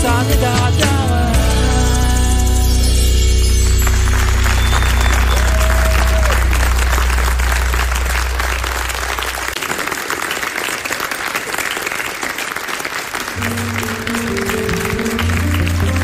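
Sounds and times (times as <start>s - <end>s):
pop-rock song: 0.0s - 3.5s
bass notes and held tones: 0.0s - 9.6s, 13.4s - 16.0s
audience applauding: 3.7s - 16.0s.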